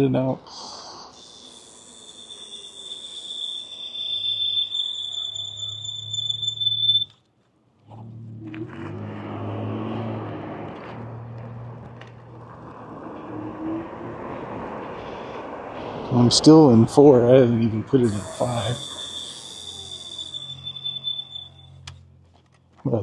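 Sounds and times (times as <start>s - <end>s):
electric scooter motor whine: 1.2s - 7.2s, 17.8s - 22.1s
wind noise: 11.9s - 21.1s.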